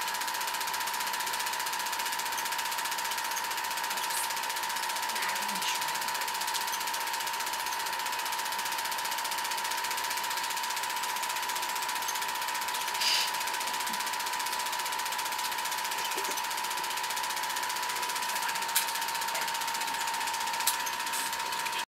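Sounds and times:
film projector clattering: 0.0s - 21.9s
short hiss: 13.0s - 13.4s.

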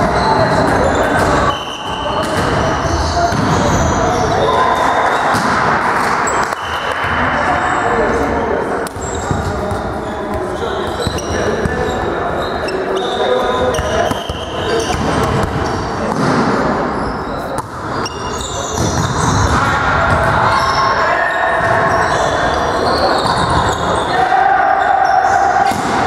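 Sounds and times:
voices calling and shouting: 0.0s - 26.0s
volleyball being hit: 5.3s - 7.2s, 25.6s - 26.0s.

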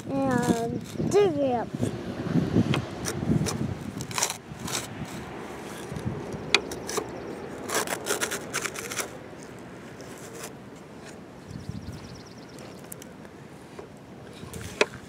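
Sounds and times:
toy excavator bucket scraping sand: 0.0s - 2.0s, 2.7s - 11.2s.

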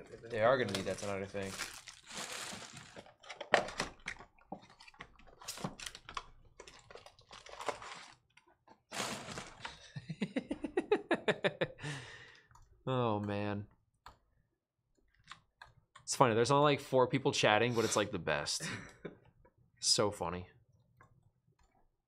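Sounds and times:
man laughing: 9.8s - 11.8s.

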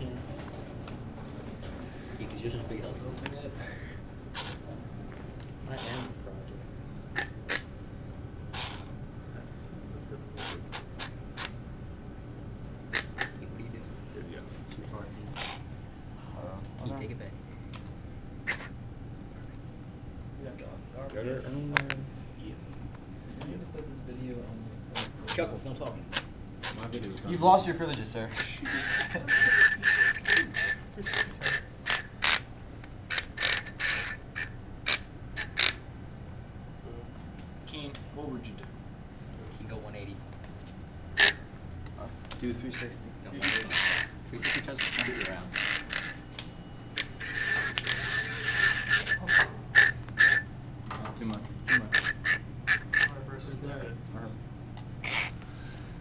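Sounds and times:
low steady hum: 0.0s - 56.0s
robot gears clicking: 28.9s - 32.4s, 33.1s - 35.8s, 43.4s - 46.2s, 51.7s - 53.1s
small electric motor whine: 46.9s - 50.5s.

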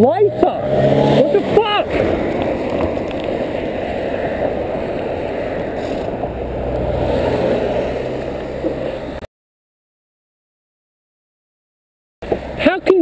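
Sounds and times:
car engine running: 0.0s - 5.1s
wind and road noise: 0.0s - 9.3s, 12.2s - 13.0s.

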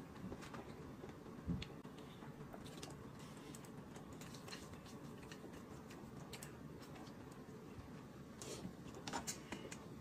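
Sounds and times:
chewing: 2.6s - 7.5s.

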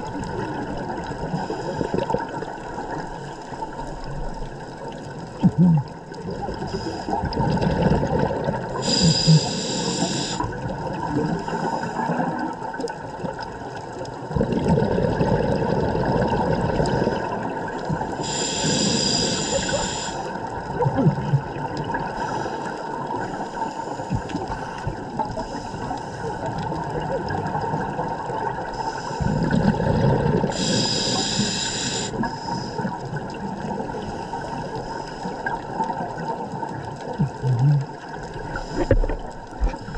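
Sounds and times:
exhaled bubbles gurgling: 0.0s - 39.9s
regulator hissing inhalation: 8.8s - 10.6s, 18.1s - 20.3s, 30.5s - 32.9s.

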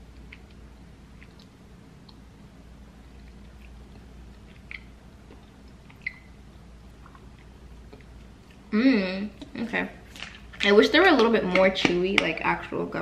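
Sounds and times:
chewing gummy: 3.0s - 6.3s.

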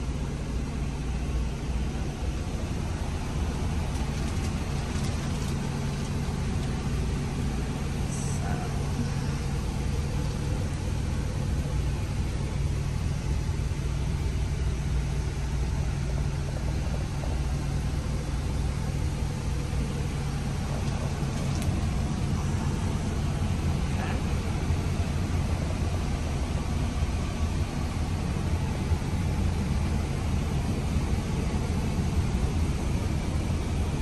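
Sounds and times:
diesel truck engine idling: 0.0s - 34.0s.

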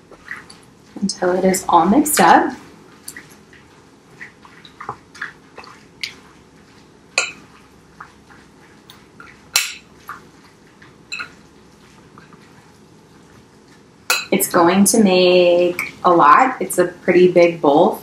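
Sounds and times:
utensil clinking glass bowl: 7.2s - 7.6s, 9.2s - 10.0s, 11.1s - 11.4s, 14.1s - 14.4s.

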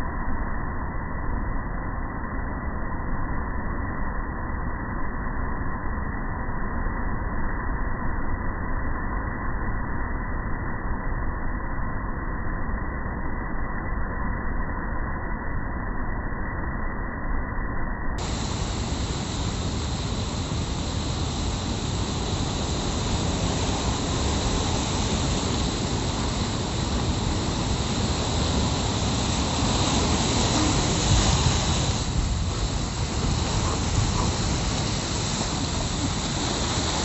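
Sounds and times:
waves breaking over rocks: 18.2s - 37.0s.

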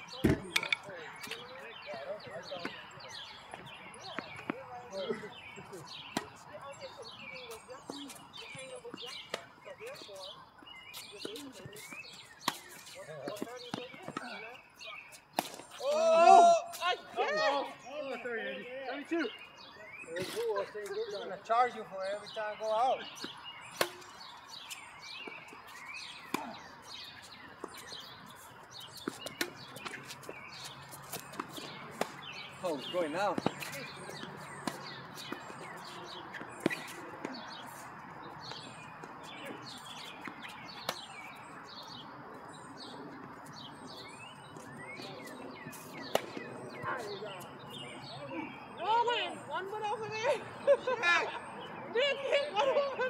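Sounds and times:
birds chirping: 0.0s - 53.0s
tennis ball hit and bouncing: 0.1s - 1.5s, 11.2s - 14.5s, 23.2s - 25.4s, 28.9s - 37.4s, 38.5s - 41.2s, 46.0s - 46.6s.

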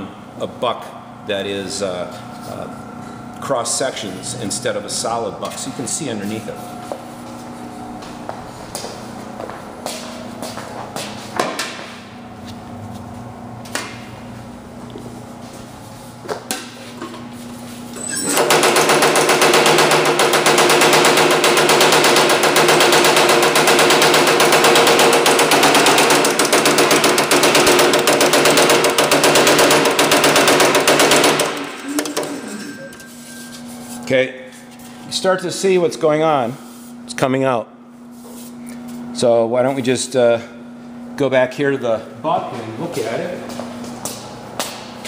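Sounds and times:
power hammer pounding metal: 18.2s - 32.5s.

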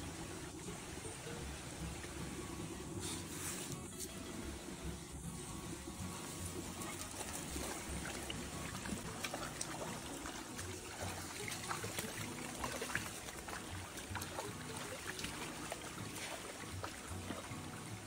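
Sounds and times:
stream trickling over rocks: 0.0s - 18.0s
small water splashes: 6.5s - 18.0s.

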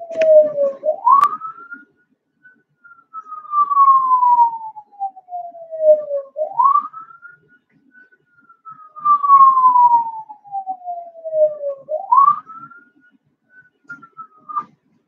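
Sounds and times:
siren wailing: 0.0s - 1.4s, 3.6s - 7.0s, 9.0s - 12.5s.

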